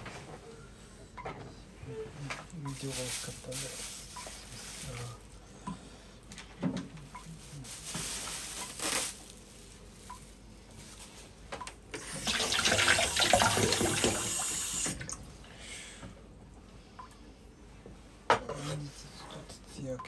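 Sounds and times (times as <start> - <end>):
rustling and handling: 2.0 - 5.6, 6.2 - 11.6
tap water splashing into sink: 12.0 - 15.2.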